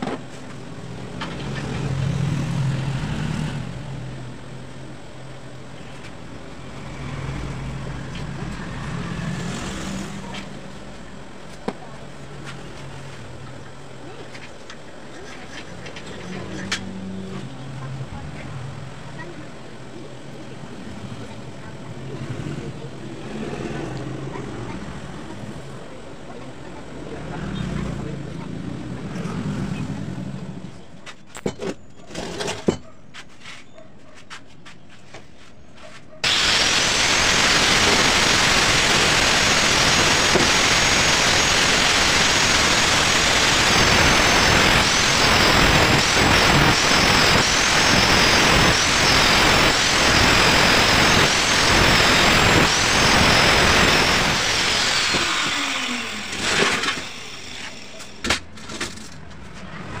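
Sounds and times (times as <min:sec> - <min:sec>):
angle grinder cutting steel: 0:36.2 - 0:58.2.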